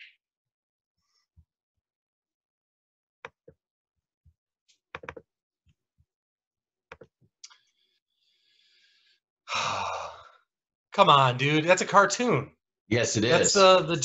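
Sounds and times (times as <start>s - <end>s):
loud breathy sigh: 9.5s - 10.4s.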